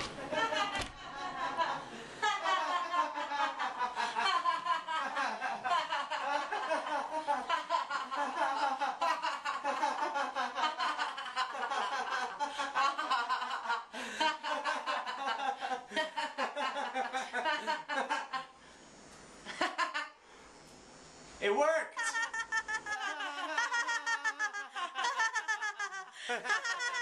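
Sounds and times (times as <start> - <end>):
people laughing: 0.1 - 18.5, 22.0 - 27.0.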